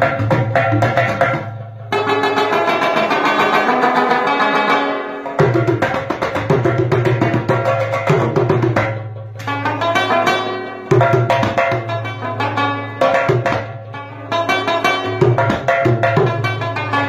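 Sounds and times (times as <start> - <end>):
hand drumming on metal pot drum: 0.0 - 3.4, 5.4 - 12.2, 13.0 - 13.8, 14.5 - 16.9
plucked lute picked phrases: 0.0 - 17.0.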